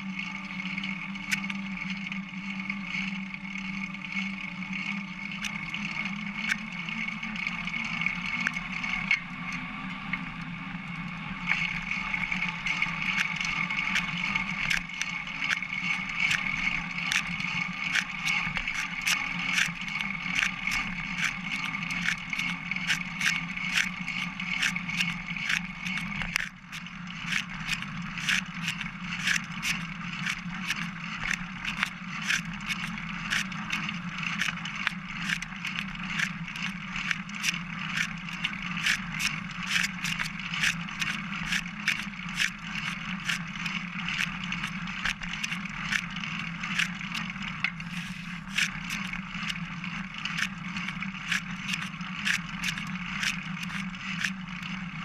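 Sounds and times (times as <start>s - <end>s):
bicycle rolling hum: 0.0s - 55.0s
bicycle sharp clicks: 11.5s - 55.0s.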